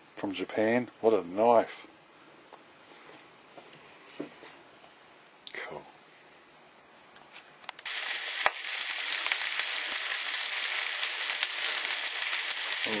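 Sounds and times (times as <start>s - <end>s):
meat sizzling in a pan: 7.8s - 13.0s.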